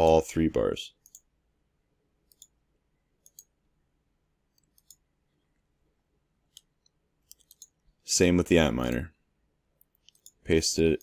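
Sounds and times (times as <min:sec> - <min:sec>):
faint computer mouse clicks: 0:02.3 - 0:02.6, 0:03.2 - 0:03.5, 0:04.6 - 0:05.0, 0:06.5 - 0:07.8, 0:09.8 - 0:10.4.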